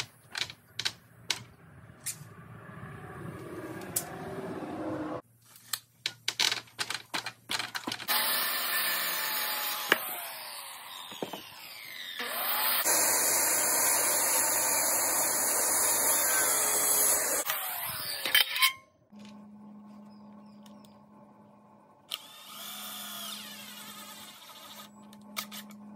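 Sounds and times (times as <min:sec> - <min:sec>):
circular saw cutting wood: 0:08.1 - 0:18.8, 0:22.1 - 0:25.8.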